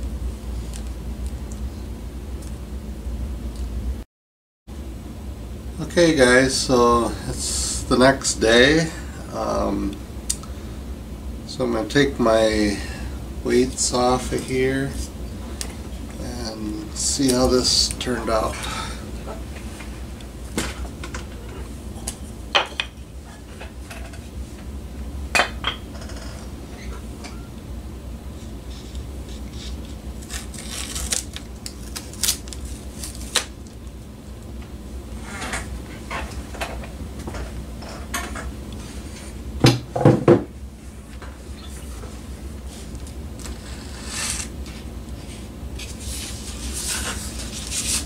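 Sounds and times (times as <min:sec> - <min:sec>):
low steady hum: 0:00.0 - 0:04.0, 0:04.7 - 0:48.0
wooden blocks knocking on workbench: 0:39.6 - 0:40.5.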